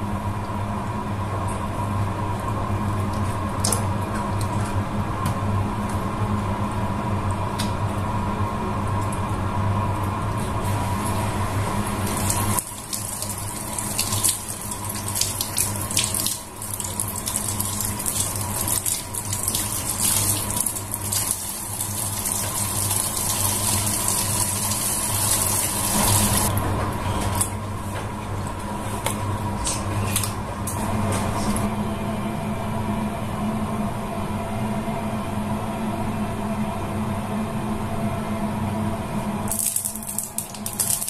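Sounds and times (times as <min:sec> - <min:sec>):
tap water running into sink: 0:12.0 - 0:26.5.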